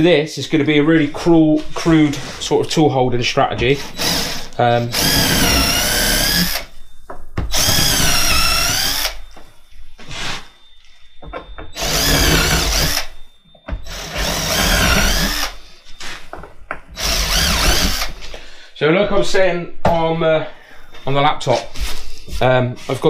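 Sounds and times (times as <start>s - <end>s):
drill driving screws: 3.8s - 6.7s, 7.5s - 9.2s, 11.8s - 13.1s, 13.8s - 15.6s, 17.0s - 18.2s.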